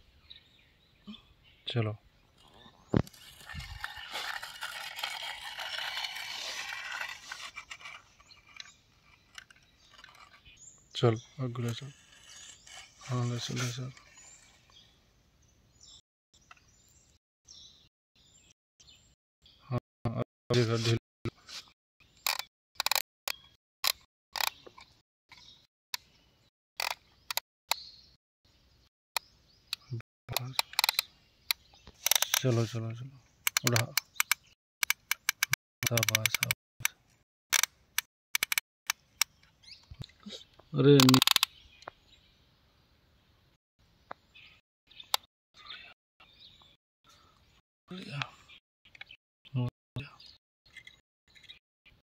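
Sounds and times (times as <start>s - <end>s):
toy winch motor whirring: 3.1s - 10.4s, 11.8s - 14.5s, 23.8s - 24.5s, 32.0s - 32.4s, 37.5s - 38.6s, 41.0s - 41.5s
toy winch plastic clicking: 3.4s - 10.4s, 22.2s - 24.9s, 26.8s - 27.4s, 30.3s - 31.0s, 32.0s - 32.5s, 33.5s - 39.3s, 41.0s - 41.5s.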